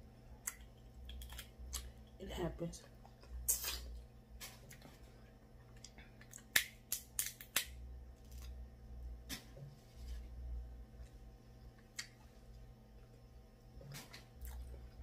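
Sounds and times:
crab shells cracking: 0.4 - 2.0, 6.2 - 8.5.

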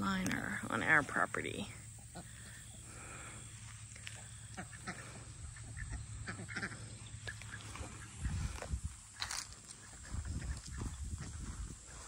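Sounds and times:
ducks quacking: 2.0 - 12.0.

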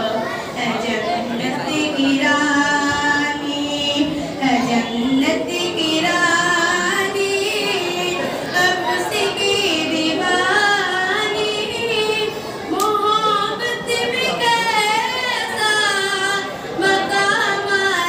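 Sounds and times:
woman singing into a microphone: 0.0 - 18.0.

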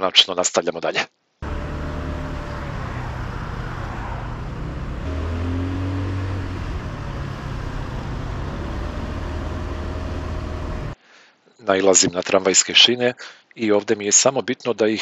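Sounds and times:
scooter engine running: 1.4 - 11.0
wind and road noise: 1.4 - 11.0.

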